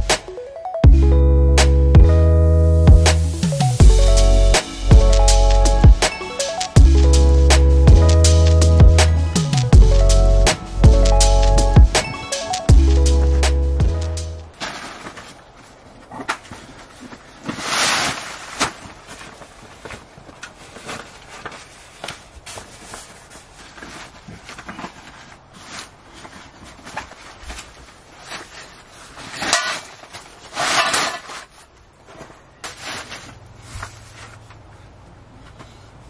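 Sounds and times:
fabric swishing: 0:17.4 - 0:19.6.

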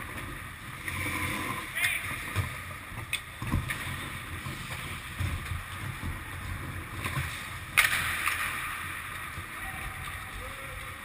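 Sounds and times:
hockey sticks and puck clacking: 0:00.0 - 0:11.0
skate blades scraping ice: 0:00.0 - 0:11.0
loud crack: 0:07.7 - 0:09.0.

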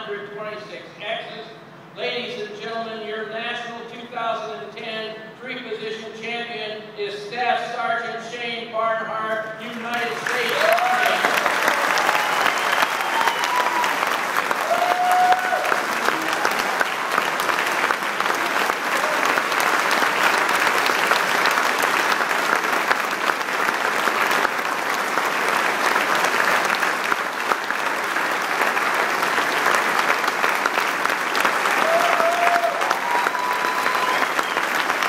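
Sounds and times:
audience applauding: 0:09.8 - 0:35.0.

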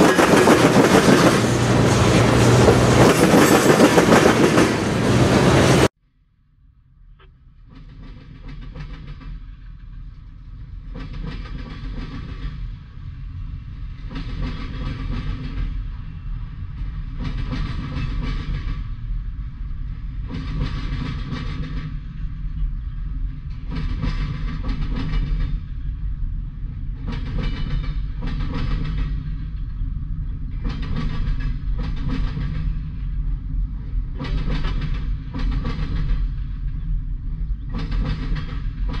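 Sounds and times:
freight train rumbling past: 0:00.0 - 0:06.0, 0:07.5 - 0:39.0
wheel clatter over rail joints: 0:23.4 - 0:25.8, 0:30.5 - 0:33.1, 0:34.1 - 0:36.8, 0:37.6 - 0:39.0.

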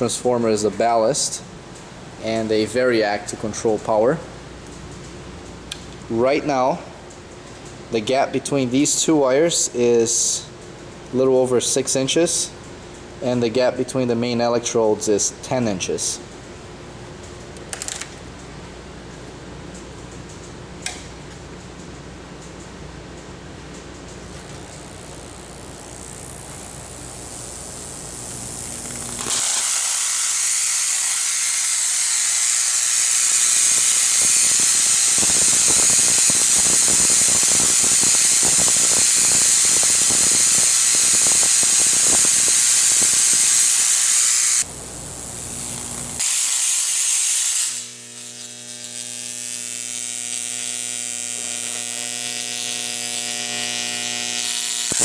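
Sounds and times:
transformer hum: 0:21.4 - 0:29.9
electric arc buzzing and crackling: 0:23.8 - 0:55.0.

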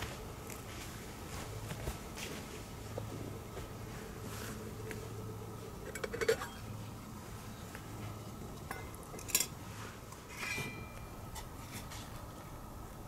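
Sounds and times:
metal scrape with ring: 0:08.7 - 0:12.1
metal cookware clinking and clattering: 0:10.3 - 0:11.0.

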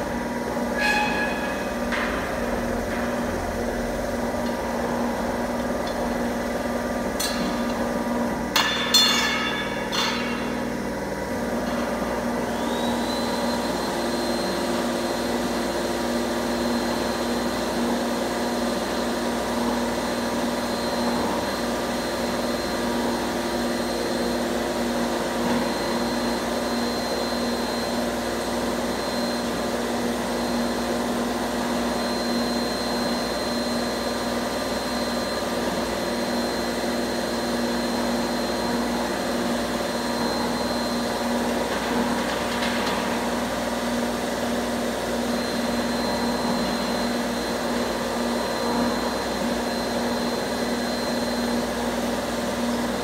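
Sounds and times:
bending machine running: 0:00.0 - 0:53.0
thin high whine: 0:00.6 - 0:02.7
sharp metal clanks: 0:00.8 - 0:02.3, 0:08.5 - 0:10.6.

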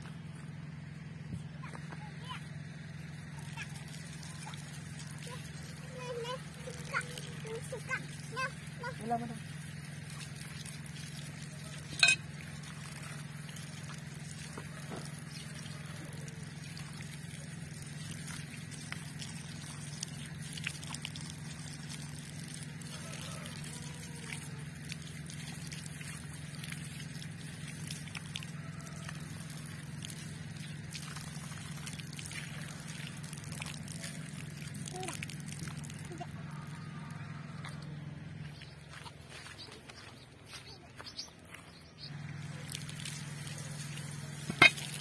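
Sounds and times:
small splashes and drips: 0:01.6 - 0:40.2, 0:41.5 - 0:45.0
water running from tap: 0:03.6 - 0:36.3
water splashing onto stones: 0:03.9 - 0:36.3, 0:42.4 - 0:45.0.

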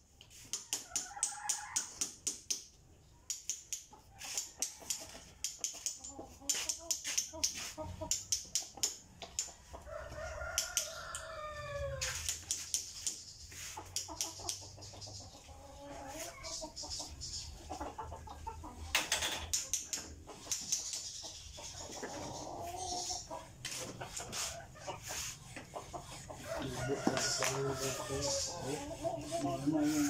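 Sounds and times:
sharp clicks and taps: 0:00.2 - 0:09.6, 0:12.2 - 0:13.2, 0:18.9 - 0:21.2
chicken calls: 0:03.9 - 0:30.0
rooster crowing: 0:09.8 - 0:12.3, 0:26.4 - 0:28.8.

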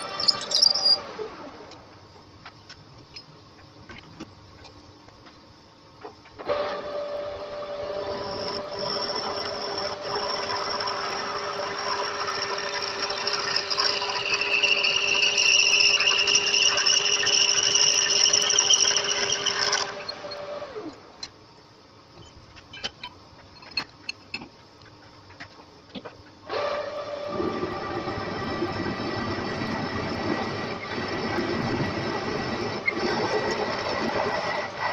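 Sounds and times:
drill cutting squeal: 0:00.0 - 0:01.1, 0:07.8 - 0:20.5
lathe spindle gear whine: 0:00.0 - 0:01.7, 0:06.5 - 0:21.1, 0:26.5 - 0:34.9.

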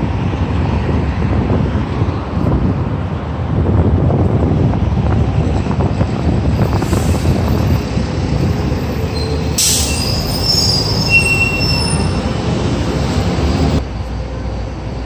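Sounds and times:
passing vehicle rumble: 0:00.0 - 0:15.0
high-pitched metallic squealing: 0:08.9 - 0:13.2.

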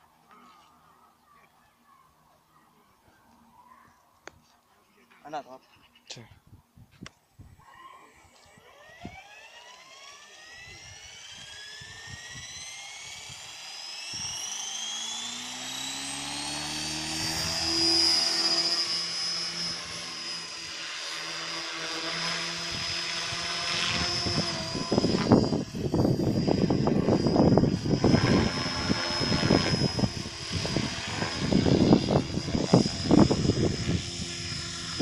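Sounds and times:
motor and gear whine: 0:07.6 - 0:35.0
rotor whirring: 0:08.2 - 0:35.0.

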